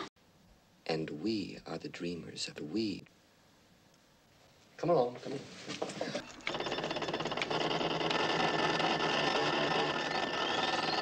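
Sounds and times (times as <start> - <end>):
computer clicking chatter: 6.2 - 11.0
rising whistle: 9.9 - 11.0.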